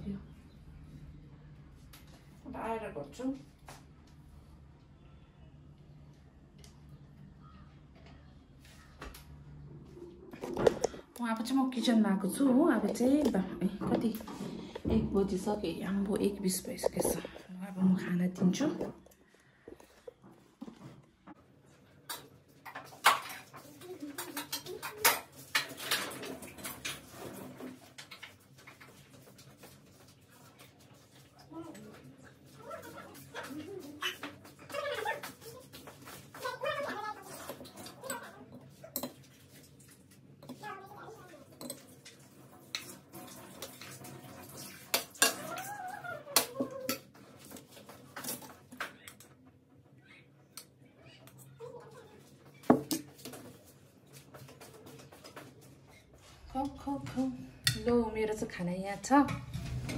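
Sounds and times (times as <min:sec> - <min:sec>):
dishes and utensils clattering: 0:22.0 - 0:30.1, 0:31.5 - 0:39.7, 0:41.4 - 0:49.2.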